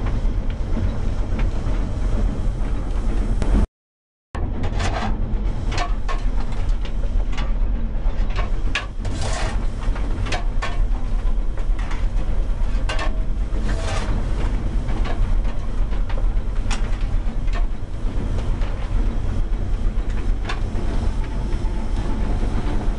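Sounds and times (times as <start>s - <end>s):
locomotive rumble: 0.0s - 3.7s, 4.4s - 22.9s
shovel scraping coal: 9.0s - 9.7s, 12.9s - 14.2s.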